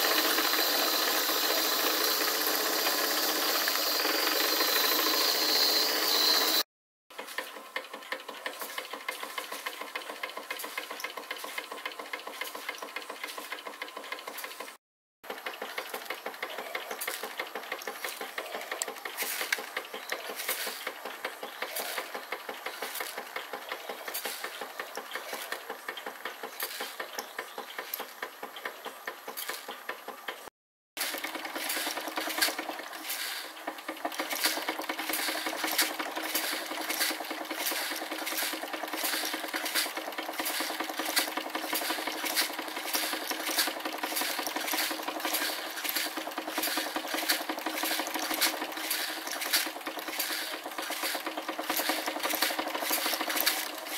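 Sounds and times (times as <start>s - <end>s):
bucket elevator chain rattling: 0.0s - 6.6s, 31.0s - 53.9s
seeds being thrown about: 34.2s - 53.9s.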